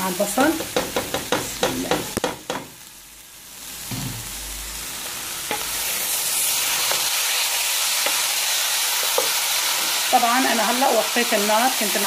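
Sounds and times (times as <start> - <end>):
rice sizzling in hot oil: 0.0 - 12.0
wooden spoon knocking on pot: 0.5 - 2.7.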